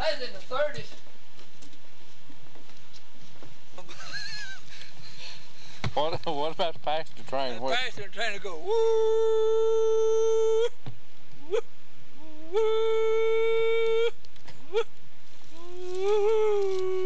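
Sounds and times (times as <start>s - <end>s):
man imitating train whistle: 11.5s - 14.9s.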